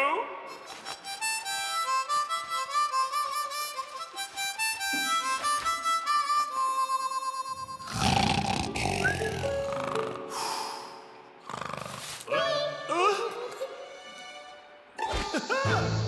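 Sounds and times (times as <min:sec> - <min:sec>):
harmonica melody: 0:00.5 - 0:14.8
loud snore: 0:07.7 - 0:10.3, 0:11.4 - 0:12.3.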